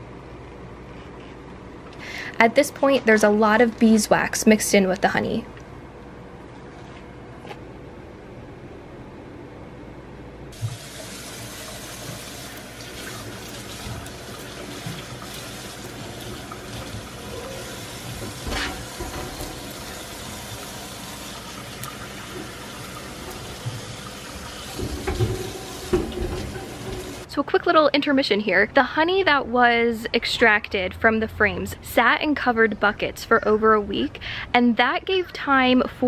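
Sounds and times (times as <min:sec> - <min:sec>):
wet scraping on metal drum: 0:16.8 - 0:19.8.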